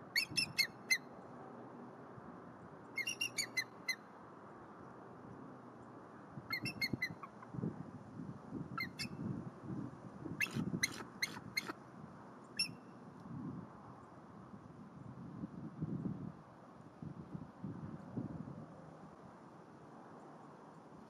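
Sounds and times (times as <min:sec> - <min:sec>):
eagle piping chitter calls: 0:00.1 - 0:01.0, 0:03.0 - 0:04.0, 0:06.5 - 0:07.4, 0:08.8 - 0:09.2, 0:10.4 - 0:11.7, 0:12.6 - 0:12.8.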